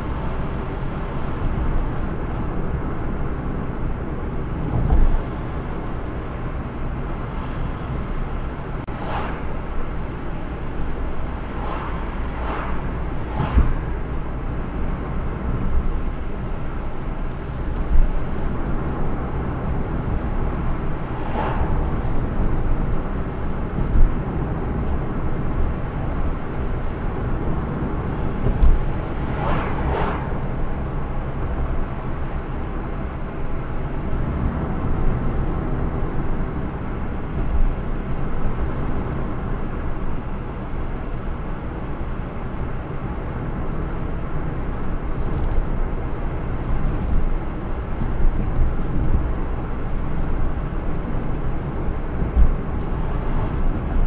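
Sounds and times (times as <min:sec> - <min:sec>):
car engine and tyre rumble: 0:00.0 - 0:54.0
brief whoosh: 0:08.9 - 0:10.2, 0:11.4 - 0:14.2, 0:21.1 - 0:22.4, 0:29.1 - 0:30.5
low thumps: 0:28.3 - 0:30.9, 0:52.1 - 0:54.0.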